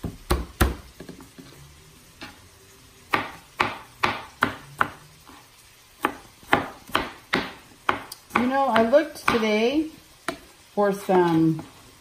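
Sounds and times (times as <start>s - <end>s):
knife chopping garlic: 3.1s - 5.0s, 6.0s - 9.5s.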